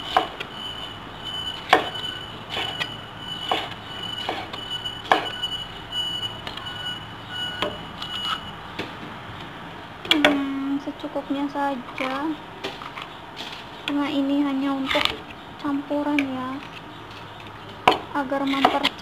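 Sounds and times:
steady high-pitched tone: 0.0 - 8.6.

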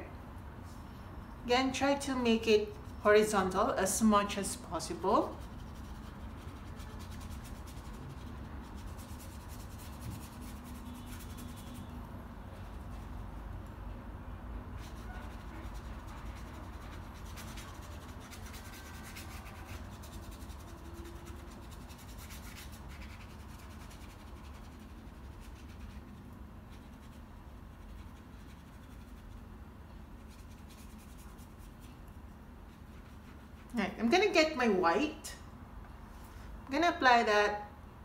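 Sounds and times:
steady low hum: 0.0 - 38.0
paintbrush scratching on paper: 4.6 - 12.0, 12.6 - 13.4, 14.8 - 34.0.

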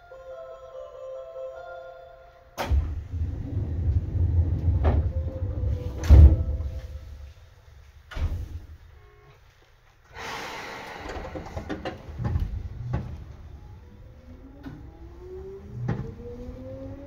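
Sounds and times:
sliding doors thudding: 2.6 - 7.2, 8.1 - 8.7, 10.9 - 13.6, 14.6 - 16.5
compressed air hiss: 10.1 - 11.8.

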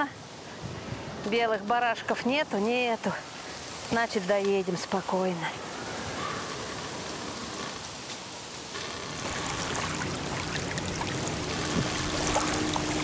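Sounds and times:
small waves lapping: 0.0 - 13.0.

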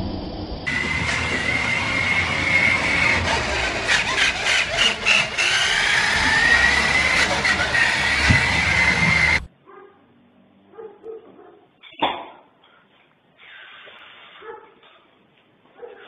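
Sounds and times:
toy car motor whine: 0.7 - 9.5
wheels rattling on wooden floor: 0.7 - 9.5.

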